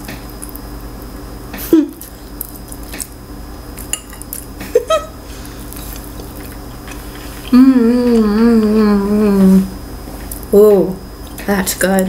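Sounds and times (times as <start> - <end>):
woman humming mmm: 7.4 - 9.8.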